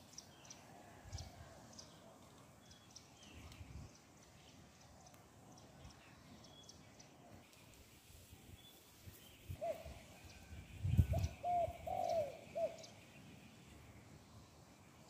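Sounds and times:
dove cooing: 11.0s - 12.9s.

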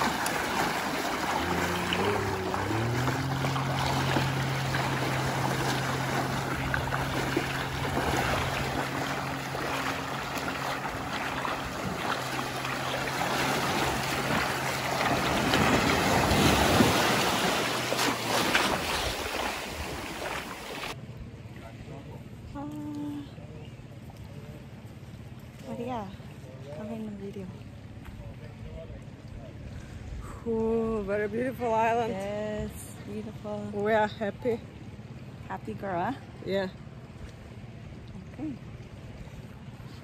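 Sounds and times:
water splashing around legs: 0.0s - 21.0s
low engine hum: 0.0s - 40.0s.

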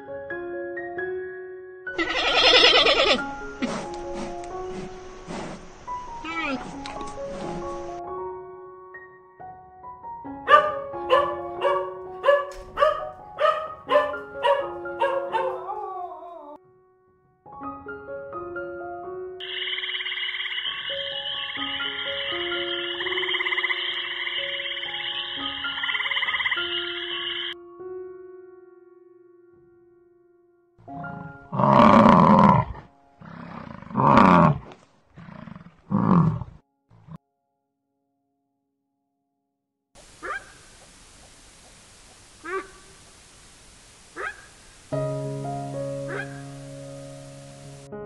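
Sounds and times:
soft background music: 0.0s - 33.6s, 44.9s - 48.0s
dog barking: 10.5s - 15.7s, 40.2s - 40.6s, 42.4s - 42.9s, 44.2s - 44.5s, 46.1s - 46.4s
large animal roaring: 31.0s - 37.2s.

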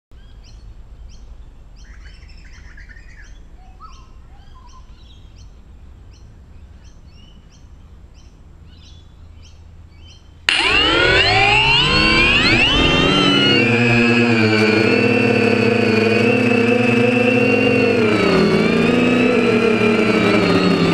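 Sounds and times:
drone motors whining: 10.5s - 20.9s.

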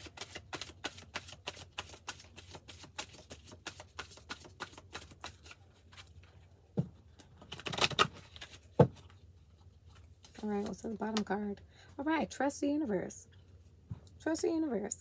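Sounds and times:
cards being shuffled: 0.0s - 6.4s, 7.2s - 9.2s.

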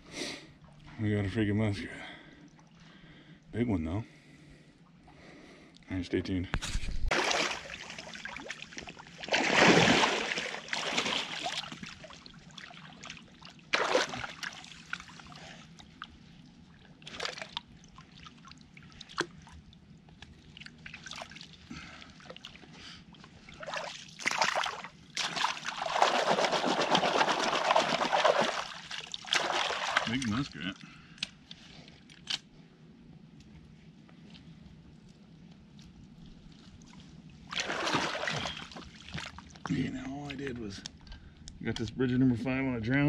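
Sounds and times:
water splashing and sloshing: 6.7s - 32.4s, 34.9s - 41.3s.

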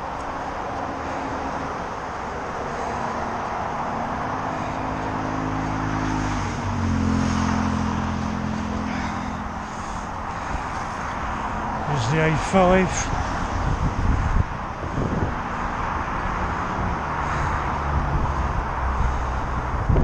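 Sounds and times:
rush of passing traffic: 0.0s - 20.0s
vehicle engine hum: 0.0s - 20.0s.

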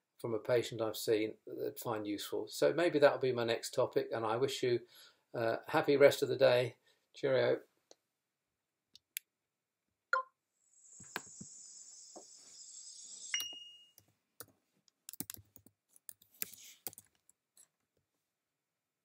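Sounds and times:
soft high hiss: 10.6s - 14.0s
short high beep: 13.3s - 14.0s.

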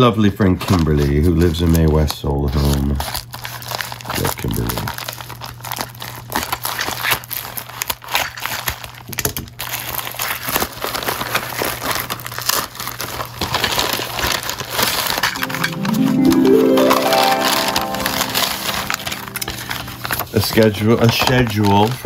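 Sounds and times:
plastic mailer tearing and crinkling: 0.8s - 15.4s, 20.2s - 22.0s
paper bag rustling: 9.7s - 22.0s.

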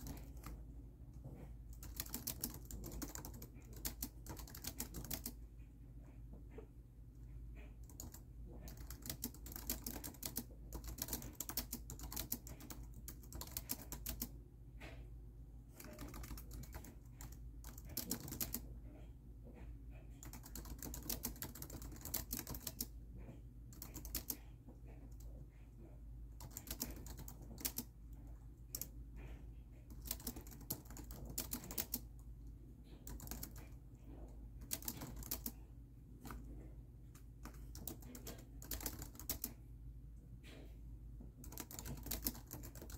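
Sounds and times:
laptop keyboard typing: 0.0s - 0.6s, 1.3s - 5.4s, 7.6s - 15.0s, 15.7s - 18.7s, 20.0s - 25.3s, 26.4s - 32.2s, 32.9s - 35.6s, 37.2s - 39.6s, 41.3s - 42.9s.

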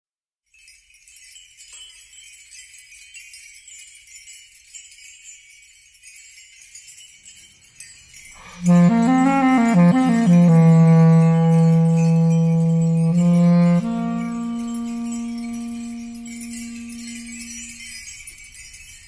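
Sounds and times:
faint jingling small bells music: 0.4s - 19.0s.

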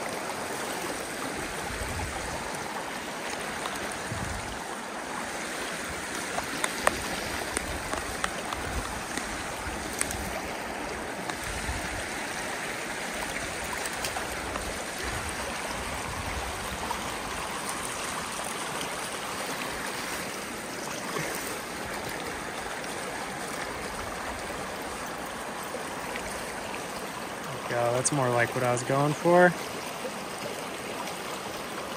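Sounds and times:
creek running over rocks: 0.0s - 31.9s.

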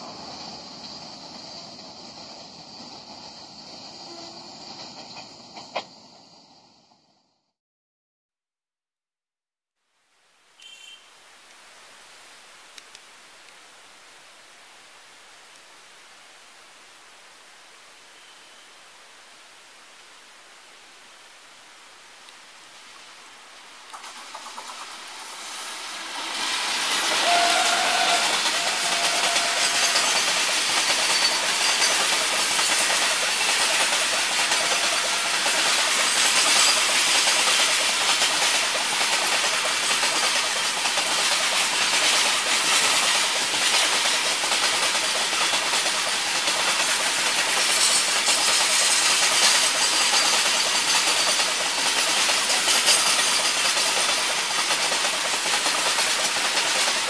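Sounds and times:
train wheels rushing on rail: 0.0s - 7.1s, 23.0s - 57.0s
locomotive passing: 23.8s - 57.0s.

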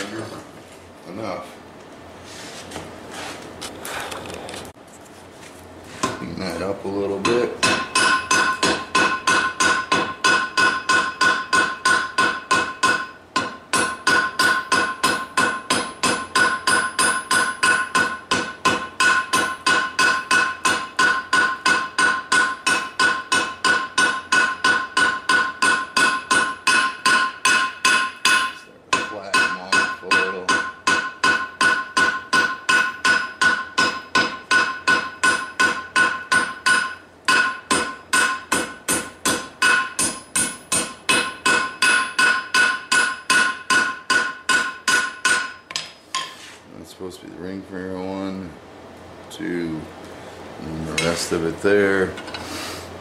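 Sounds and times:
hammer striking steel on anvil: 7.2s - 46.4s.

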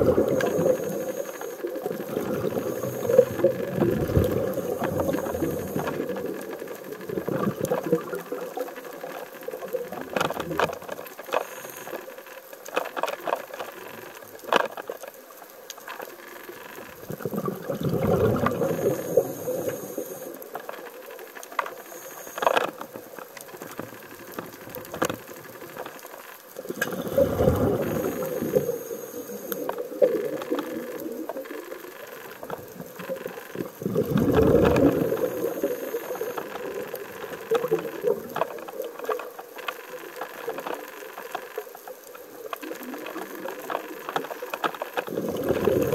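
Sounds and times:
underwater regulator bubbling: 0.0s - 8.7s, 17.0s - 20.3s, 26.6s - 31.4s, 32.4s - 38.4s, 45.0s - 45.9s.

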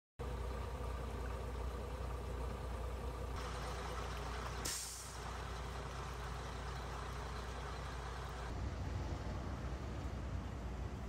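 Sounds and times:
low engine hum: 0.2s - 11.0s
brief hiss: 4.6s - 5.3s.

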